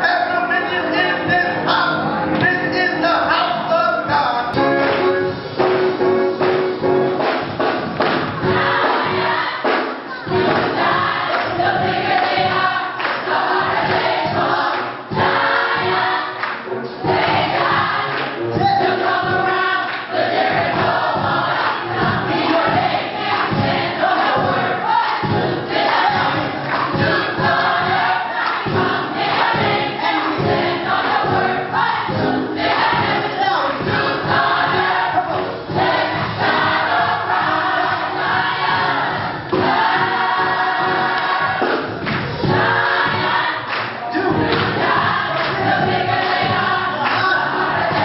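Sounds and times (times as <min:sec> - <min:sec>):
gospel choir singing: 0:00.0 - 0:48.0.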